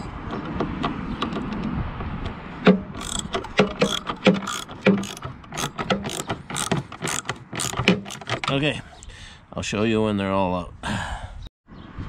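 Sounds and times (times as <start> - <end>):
socket ratchet clicking: 0.3 - 8.6.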